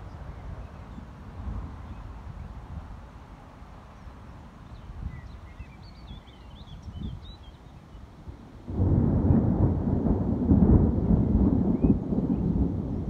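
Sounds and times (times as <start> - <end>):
thunder clap and rumbling: 8.7 - 13.0.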